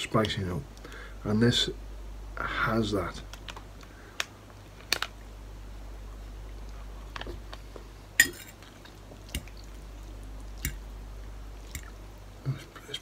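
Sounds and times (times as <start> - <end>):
fork clinking against bowl: 8.2 - 8.6.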